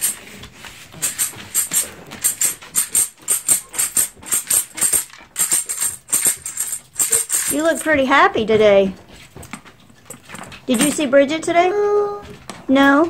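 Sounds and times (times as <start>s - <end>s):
tambourine jingles rattling: 1.0s - 8.0s, 10.7s - 11.2s.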